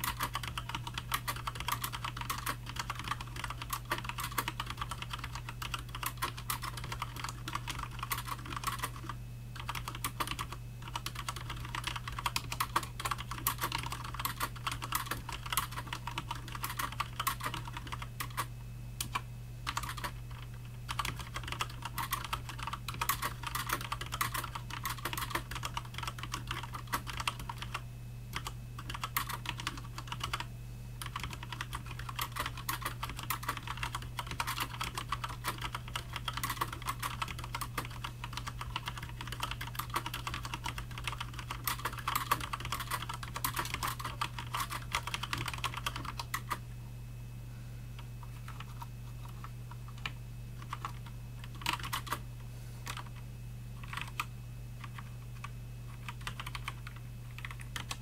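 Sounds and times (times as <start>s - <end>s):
mechanical keyboard typing: 0.0s - 27.8s, 28.4s - 46.6s, 48.3s - 52.2s, 52.8s - 53.2s, 53.8s - 58.0s
steady low hum: 0.0s - 58.0s.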